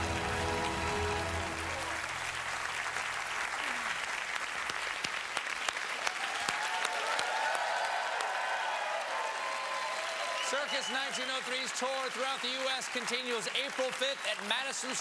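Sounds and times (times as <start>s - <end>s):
music: 0.0s - 2.5s
audience applauding: 0.0s - 15.0s.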